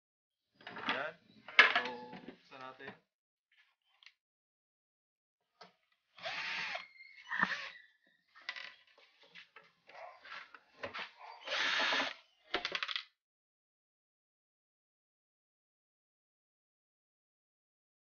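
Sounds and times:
cordless drill motor bursts: 6.2s - 7.7s, 11.5s - 12.2s.

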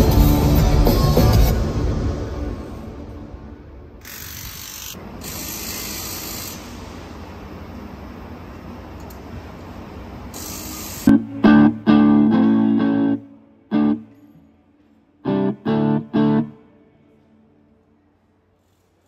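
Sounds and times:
electric guitar chords: 0.0s - 3.5s, 11.1s - 14.4s, 15.2s - 17.5s.

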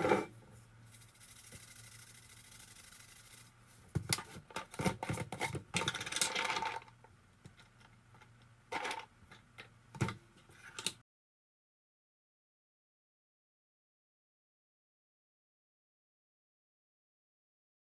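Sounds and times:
seeds rattling in container: 0.9s - 3.6s.

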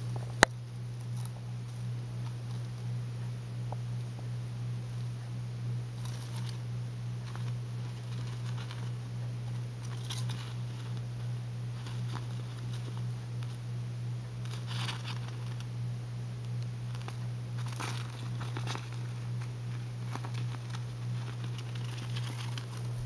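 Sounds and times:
steady low hum: 0.0s - 23.0s
hamster rustling on plastic: 5.8s - 23.0s.

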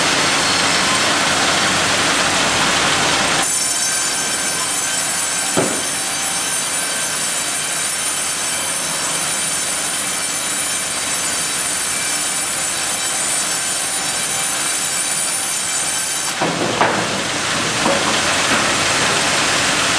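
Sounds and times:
bandsaw cutting log: 0.0s - 19.9s
knocks: 5.6s - 6.0s, 16.4s - 19.2s.

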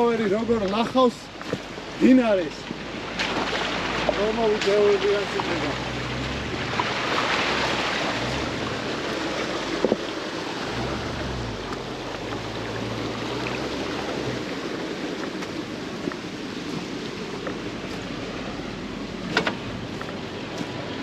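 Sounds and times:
water splashing: 0.0s - 21.0s
car engine revving: 5.2s - 15.1s.

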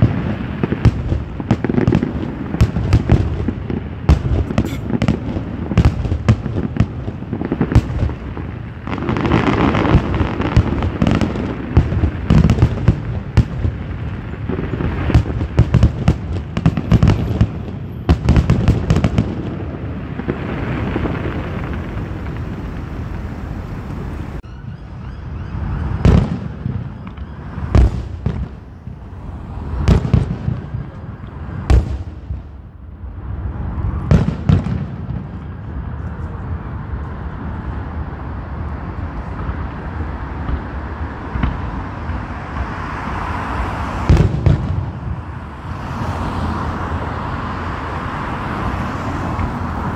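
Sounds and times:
firework crackling: 0.0s - 24.4s, 25.5s - 49.9s
firework shells bursting: 0.6s - 13.6s.

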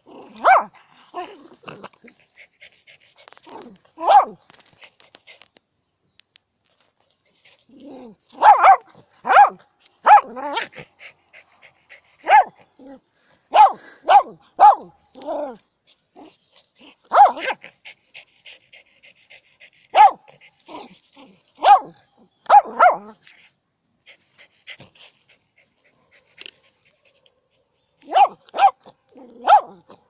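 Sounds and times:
small dog barking: 0.3s - 1.3s, 4.0s - 4.4s, 8.3s - 10.8s, 12.2s - 12.6s, 13.5s - 15.5s, 17.1s - 17.6s, 19.9s - 20.9s, 21.6s - 23.2s, 28.0s - 30.0s.

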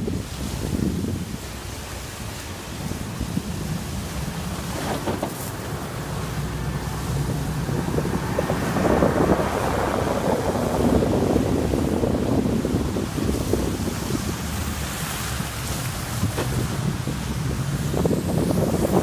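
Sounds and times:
car engine rumble: 0.0s - 19.0s
tyres hissing through slush: 0.2s - 19.0s.

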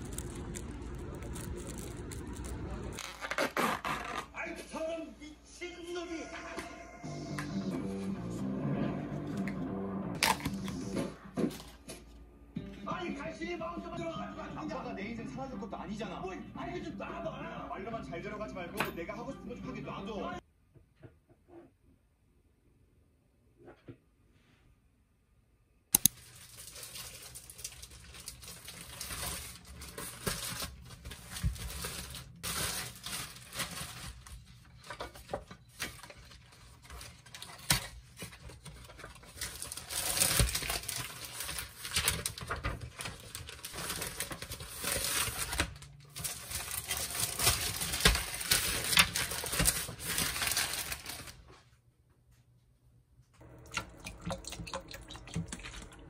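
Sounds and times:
plastic wrapping crinkling and tearing: 0.0s - 4.3s, 26.0s - 51.5s.

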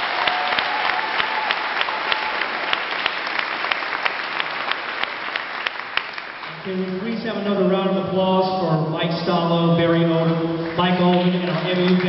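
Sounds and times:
crowd applauding: 0.0s - 7.0s, 10.5s - 12.0s.

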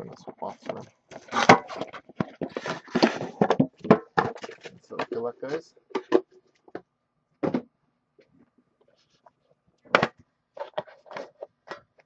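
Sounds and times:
box scraping: 0.4s - 5.2s.

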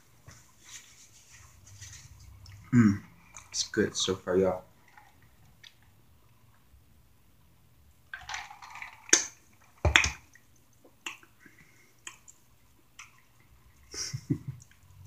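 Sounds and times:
wet chewing clicks and smacks: 12.0s - 13.5s.

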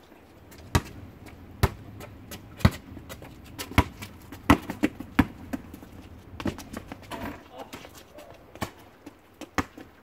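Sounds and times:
basketball bouncing on asphalt: 0.4s - 10.0s.

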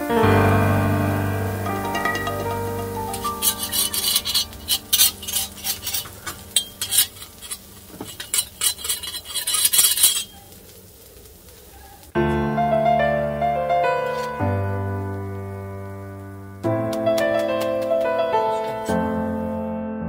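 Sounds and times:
piano music: 0.0s - 9.0s, 12.1s - 20.0s
pepper mill grinding: 1.8s - 10.6s.

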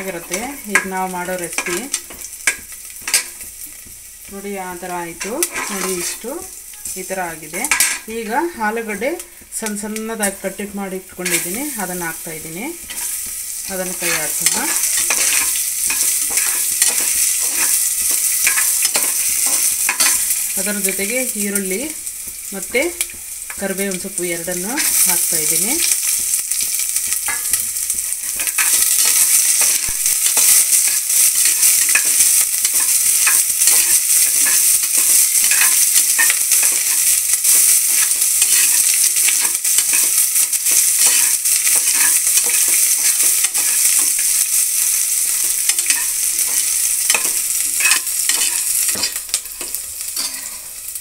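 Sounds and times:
food sizzling in hot oil: 0.0s - 51.0s
metal spatula scraping pot: 5.2s - 6.9s, 13.8s - 21.0s, 28.2s - 44.4s, 45.4s - 50.7s.

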